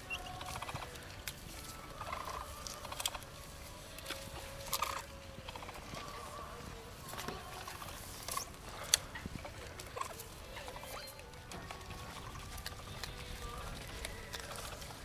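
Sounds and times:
animals chirping and clucking: 0:00.0 - 0:15.0
animals crunching leaves: 0:00.0 - 0:15.0
scattered clicks: 0:00.1 - 0:03.3, 0:07.2 - 0:15.0.

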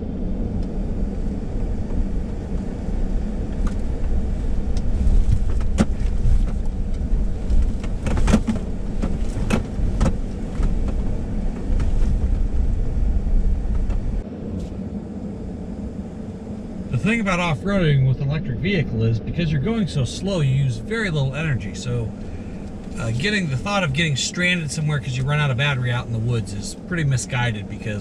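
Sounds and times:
low rumble of tyres and suspension: 0:00.0 - 0:28.0
knocks and rattles over bumps: 0:04.8 - 0:14.2.

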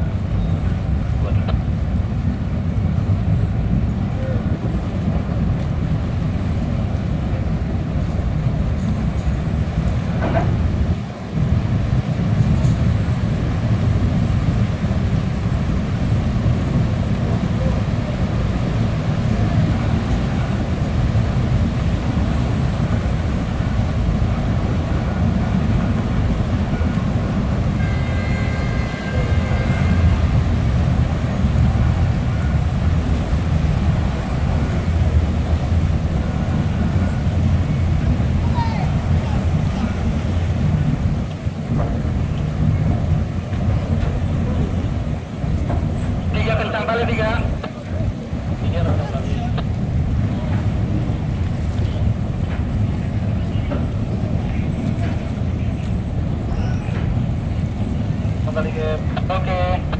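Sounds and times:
boat engines rumbling: 0:00.0 - 0:59.9.

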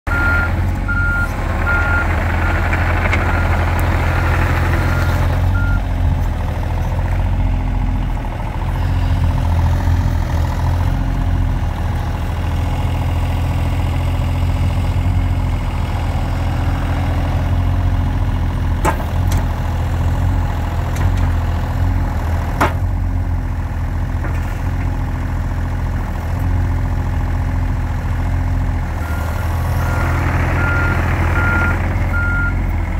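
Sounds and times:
excavator diesel engine running: 0:00.1 - 0:32.9
backup alarm beeping: 0:03.2 - 0:05.8, 0:30.6 - 0:32.6.

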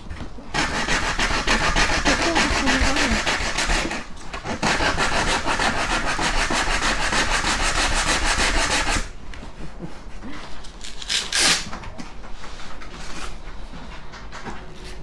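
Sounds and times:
hand tool rasping on wood: 0:00.5 - 0:09.1.

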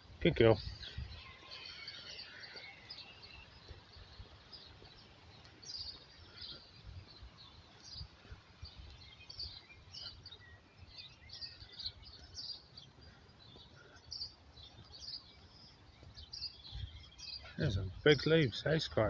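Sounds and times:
songbirds chirping and trilling: 0:00.0 - 0:19.0
faint low rumble: 0:17.6 - 0:18.1.

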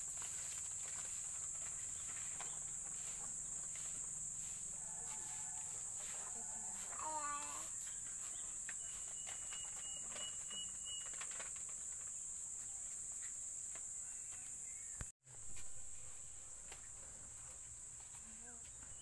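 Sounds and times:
high-pitched insect drone: 0:00.0 - 0:14.9
thin whistle-like tone: 0:08.8 - 0:11.2.

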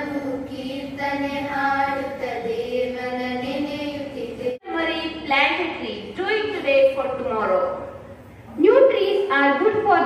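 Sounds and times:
girls singing together: 0:00.0 - 0:04.6.

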